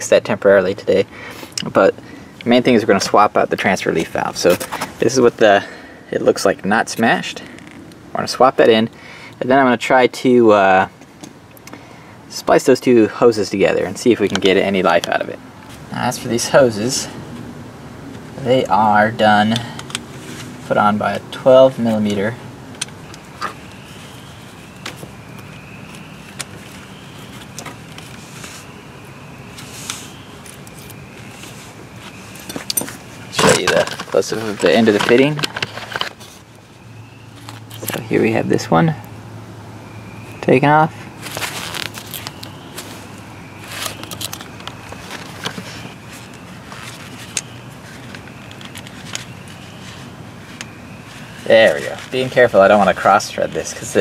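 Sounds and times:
gloved hands rustling: 0:19.5 - 0:38.1, 0:41.0 - 0:54.0.

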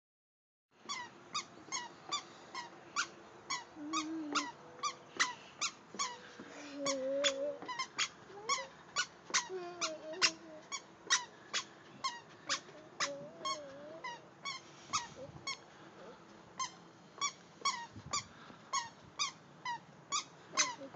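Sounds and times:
squeaker shoes squeaking: 0:00.8 - 0:15.6, 0:16.6 - 0:20.9.

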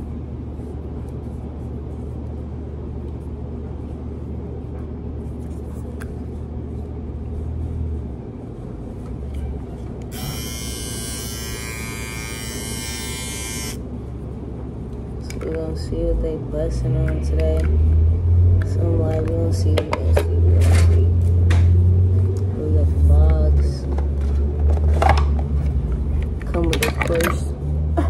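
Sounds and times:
low hum: 0:00.0 - 0:24.8
electric shaver buzzing: 0:10.1 - 0:13.8.

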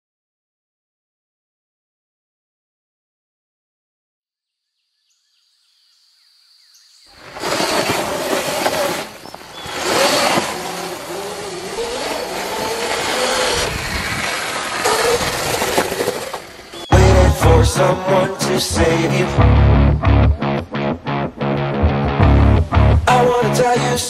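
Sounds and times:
tyre and riding noise: 0:07.2 - 0:17.2
electric motor whine: 0:07.3 - 0:16.8.

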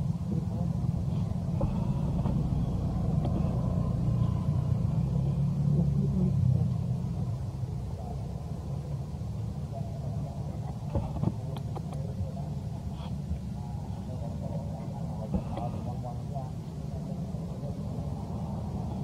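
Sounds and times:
motor vehicle rumble: 0:00.0 - 0:19.0.

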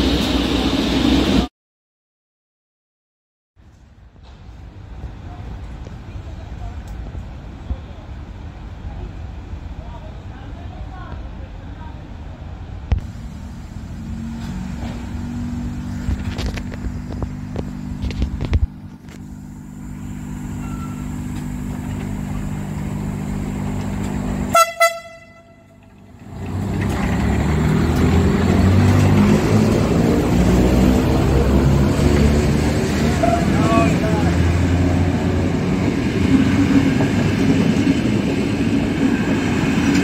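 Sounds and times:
train rumbling past: 0:00.0 - 0:01.5, 0:03.7 - 0:40.0
electric locomotive humming: 0:04.2 - 0:40.0
train horn toots: 0:24.5 - 0:25.9.

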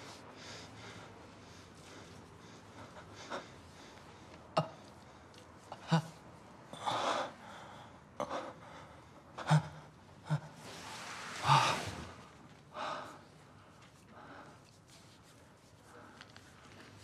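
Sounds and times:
man gasping and moaning: 0:09.3 - 0:10.7.

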